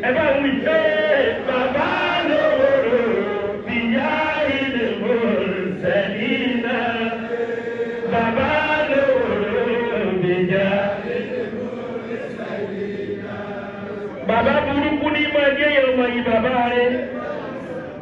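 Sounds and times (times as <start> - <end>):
man chanting into a microphone: 0.0 - 7.3, 7.9 - 11.3, 14.1 - 17.5.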